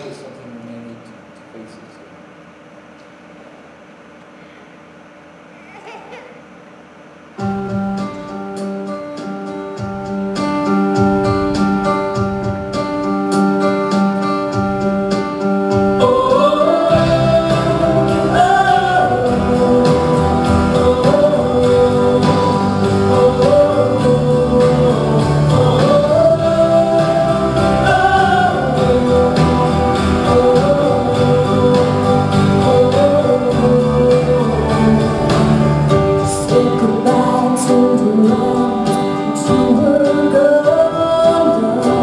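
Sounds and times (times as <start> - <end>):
sustained instrumental chords: 7.4 - 42.0
woman singing a slow ballad: 36.2 - 42.0.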